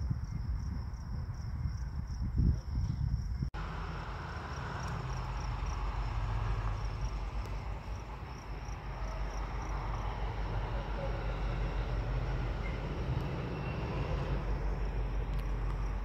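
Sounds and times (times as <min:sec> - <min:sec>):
insect chirping: 0:00.0 - 0:16.0
distant freight train rumble: 0:03.6 - 0:16.0.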